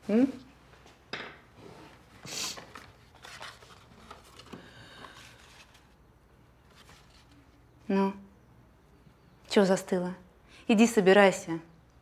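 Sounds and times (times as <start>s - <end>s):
soft rustling: 6.6s - 7.7s.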